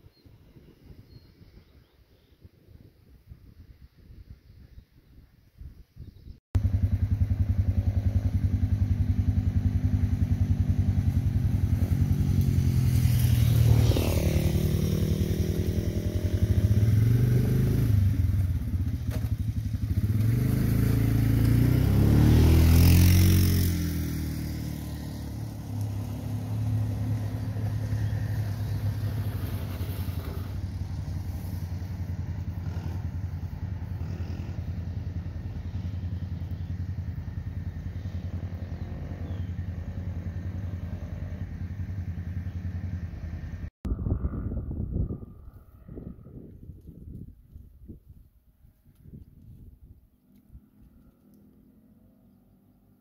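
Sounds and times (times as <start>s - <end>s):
off-road vehicle engine running: 6.6s - 45.7s.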